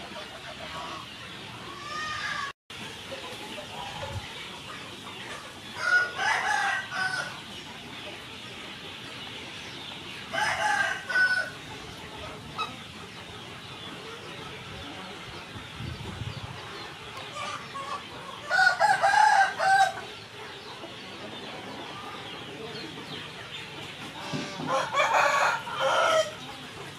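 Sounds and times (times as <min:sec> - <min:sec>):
rooster crowing: 0:10.3 - 0:11.5, 0:18.5 - 0:20.0, 0:24.6 - 0:26.3.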